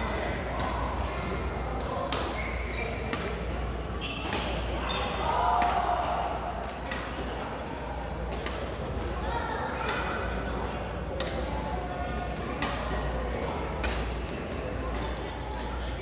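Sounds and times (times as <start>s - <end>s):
voices in a hall: 0.0s - 16.0s
badminton rackets hitting shuttlecock: 1.8s - 2.4s, 5.5s - 7.2s, 11.2s - 15.2s.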